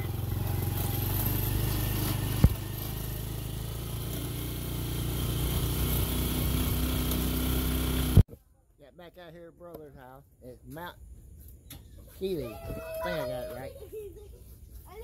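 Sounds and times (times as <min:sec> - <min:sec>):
vehicle engine running: 0:00.0 - 0:08.2.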